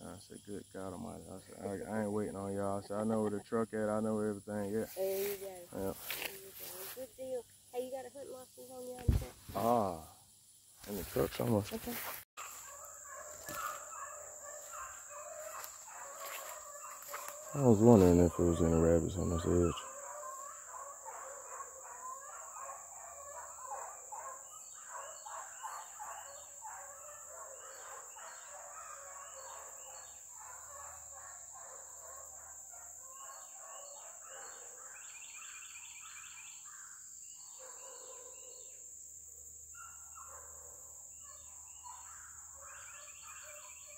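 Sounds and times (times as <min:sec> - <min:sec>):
high insect drone: 0:00.0 - 0:43.9
birds chirping: 0:10.8 - 0:38.8, 0:39.7 - 0:43.9
dogs baying: 0:12.4 - 0:35.3, 0:37.5 - 0:38.7.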